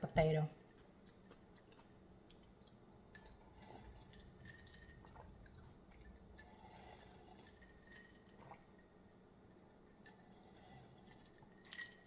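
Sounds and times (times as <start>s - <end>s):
ice clicking against glass: 2.6s - 8.9s.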